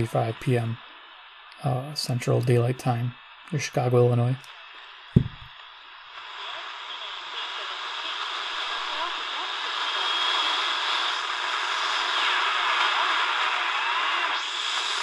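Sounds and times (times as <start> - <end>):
radio static hiss: 0.0 - 15.0
thin steady whistle: 6.4 - 15.0.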